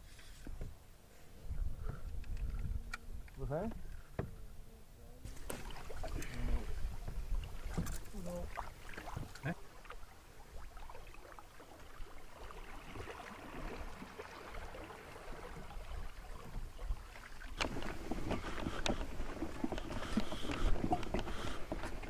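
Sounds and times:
water slapping against canoe hull: 5.2s - 22.0s.

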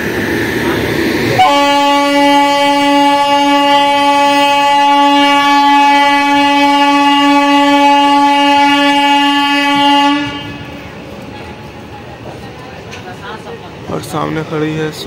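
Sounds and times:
locomotive horn blast: 1.4s - 10.9s.

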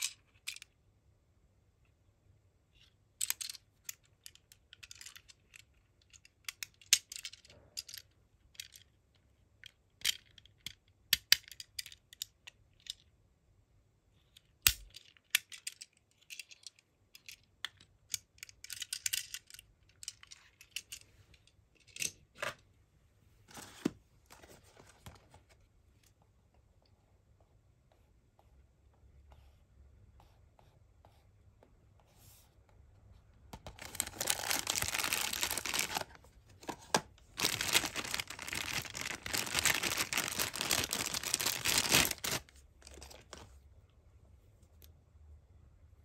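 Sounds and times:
rustling: 33.7s - 43.6s.

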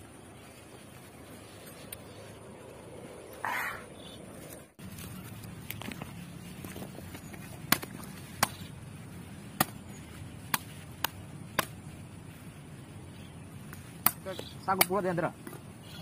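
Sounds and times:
machete chopping coconut: 7.7s - 8.7s, 9.5s - 9.8s, 10.4s - 11.8s, 13.7s - 15.6s.

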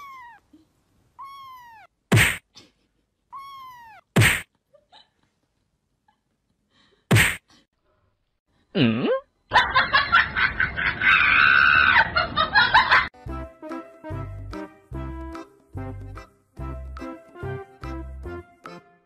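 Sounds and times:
comedy slap whacks: 2.1s - 2.5s, 4.2s - 4.5s, 7.1s - 7.5s.

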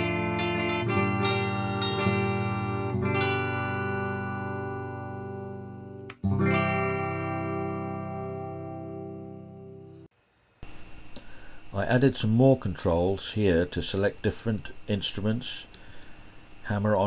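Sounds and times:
synthesized guitar chords strummed: 0.0s - 10.1s.

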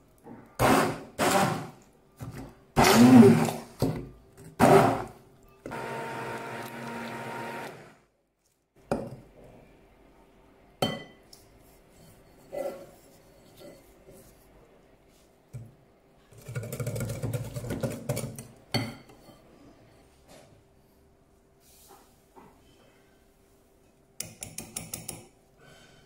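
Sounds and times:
immersion blender running: 0.6s - 1.8s, 2.8s - 3.6s, 4.6s - 5.1s, 5.7s - 8.0s.

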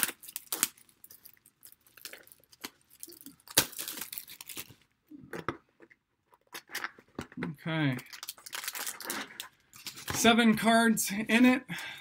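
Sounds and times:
cardboard and wrapping tearing: 0.0s - 4.8s, 8.1s - 10.1s.

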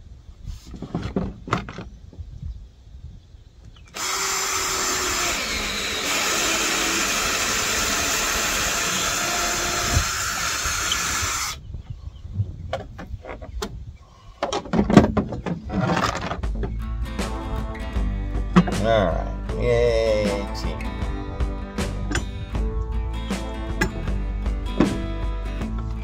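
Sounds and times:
drill boring through wood: 3.9s - 11.6s
knocks and clatter: 14.4s - 16.8s, 24.8s - 25.1s.

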